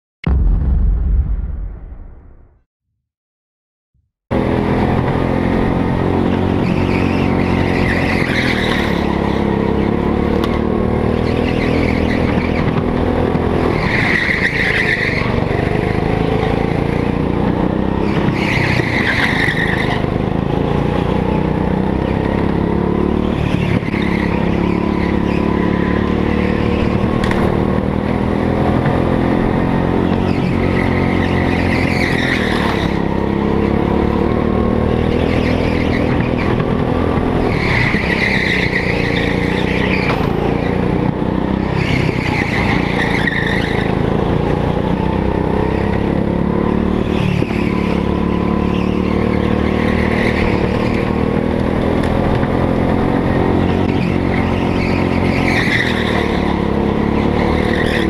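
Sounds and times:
go-kart engine revving: 0:04.3 - 0:58.0
tyre squeal: 0:06.4 - 0:10.1, 0:11.1 - 0:12.8, 0:13.6 - 0:16.0, 0:18.0 - 0:20.3, 0:21.0 - 0:27.7, 0:29.8 - 0:33.7, 0:34.9 - 0:44.1, 0:46.9 - 0:58.0.

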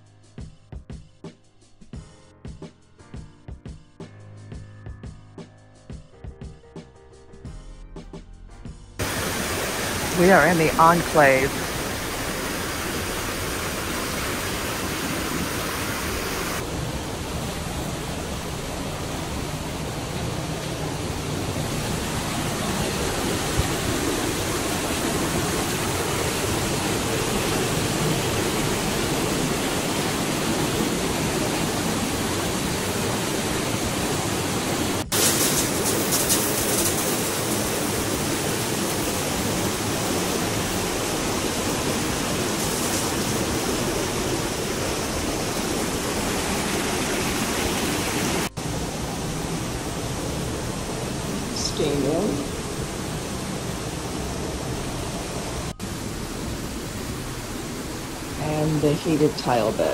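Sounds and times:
steam hissing: 0:09.0 - 0:48.6.

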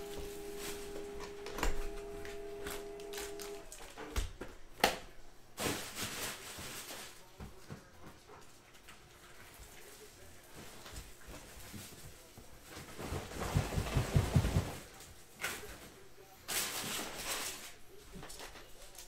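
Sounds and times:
cardboard and wrapper rustling: 0:00.0 - 0:04.0, 0:05.6 - 0:07.7.

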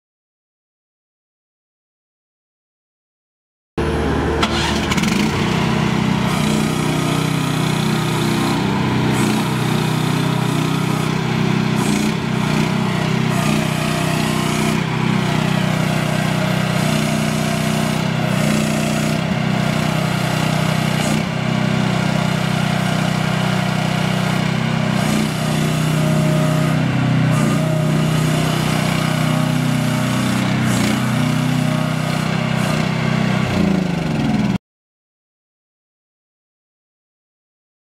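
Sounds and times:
mini excavator engine running: 0:03.8 - 0:34.6.

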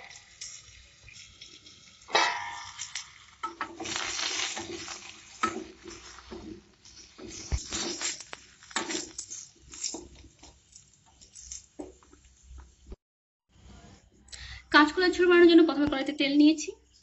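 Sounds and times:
metal spatula scraping a pan: 0:00.0 - 0:10.5
potatoes frying in oil: 0:00.0 - 0:12.8
metal pot lid clanking: 0:01.7 - 0:06.6.

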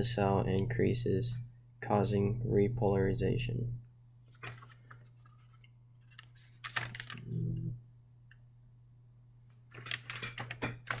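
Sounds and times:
steady low hum: 0:00.0 - 0:11.0
paper rustling and crinkling: 0:04.2 - 0:07.3, 0:09.7 - 0:11.0.

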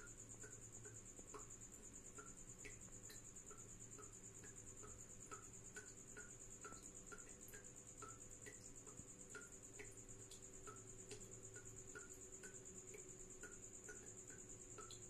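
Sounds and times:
cricket trilling: 0:00.0 - 0:15.0.

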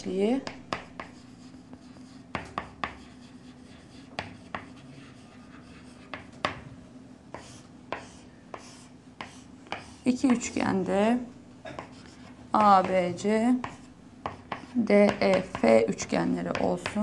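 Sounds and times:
chalk scratching on chalkboard: 0:00.4 - 0:06.4, 0:07.3 - 0:10.6, 0:11.8 - 0:13.0, 0:13.6 - 0:15.7.

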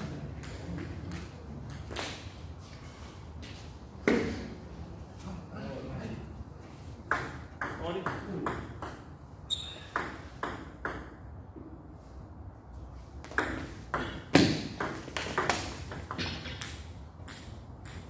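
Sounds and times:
table tennis ball hits and bounces: 0:07.1 - 0:09.1, 0:09.9 - 0:11.3, 0:13.2 - 0:18.0.

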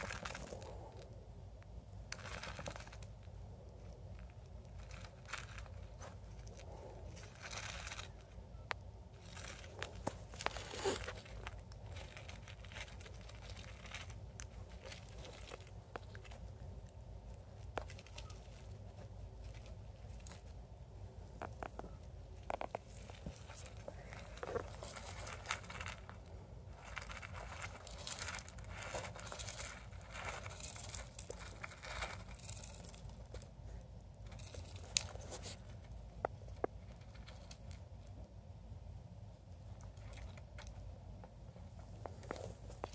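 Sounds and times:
rustling wood shavings: 0:00.0 - 0:01.1, 0:02.1 - 0:08.4, 0:09.1 - 0:20.6, 0:21.4 - 0:33.6.

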